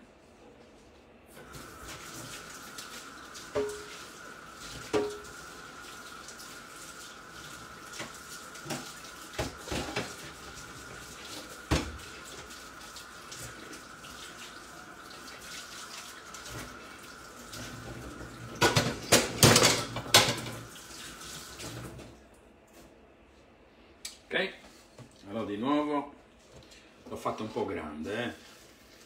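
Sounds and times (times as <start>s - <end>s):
food sizzling in a frying pan: 1.4s - 20.7s.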